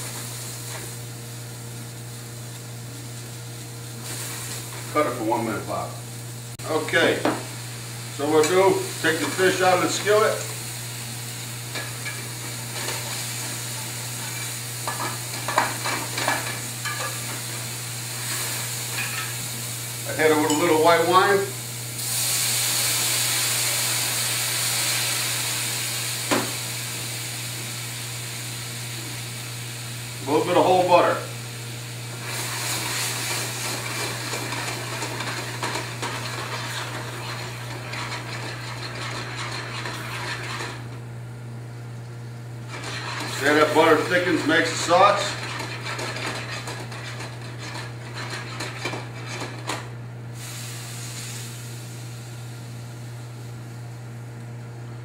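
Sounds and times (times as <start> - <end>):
berries sizzling in a pan: 0.0 - 54.1
metal spatula scraping pan: 33.9 - 40.8, 42.7 - 49.8.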